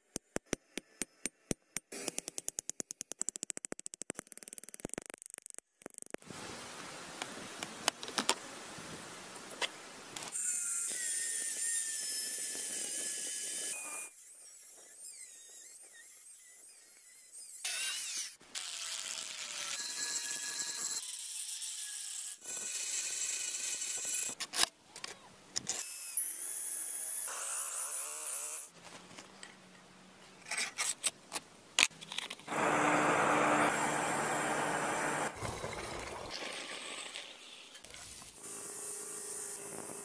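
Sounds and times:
power drill boring through steel: 32.5 - 35.3
belt sander grinding steel: 32.5 - 35.4.

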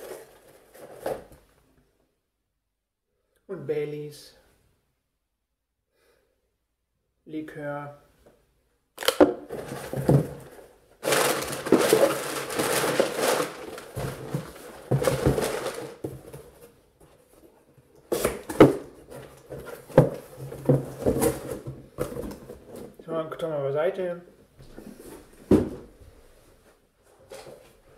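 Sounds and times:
cardboard rustling and scraping: 0.0 - 1.4, 9.5 - 23.0.

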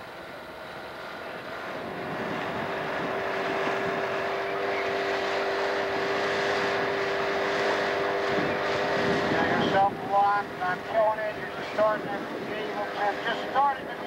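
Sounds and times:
outboard motor humming: 0.0 - 14.0.

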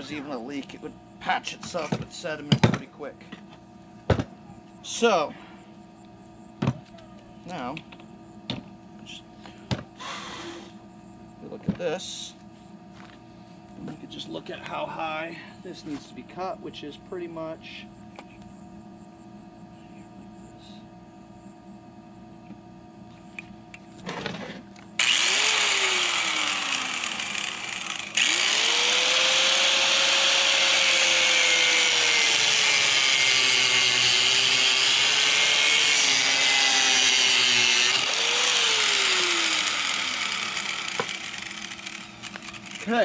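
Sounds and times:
angle grinder cutting plastic pipe: 25.0 - 43.0.

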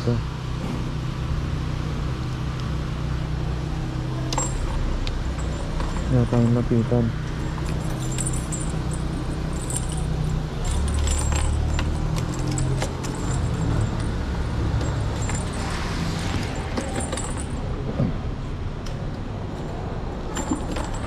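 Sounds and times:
metallic jingling of keys: 4.3 - 6.7, 7.3 - 17.8, 20.3 - 21.0.

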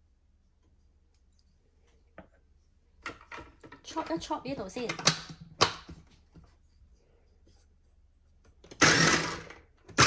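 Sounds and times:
food processor chopping: 8.8 - 10.0.

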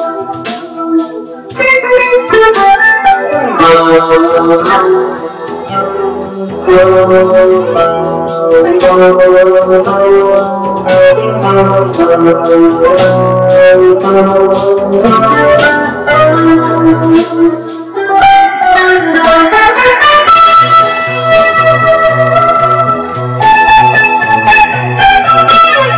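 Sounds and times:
organ chords on keyboard: 0.0 - 25.9
sharp percussive beat: 1.5 - 18.4
bass line: 1.6 - 17.8, 18.8 - 25.9.

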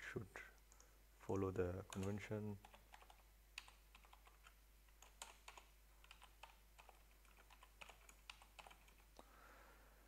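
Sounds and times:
faint keystrokes on a keyboard: 1.9 - 9.2.

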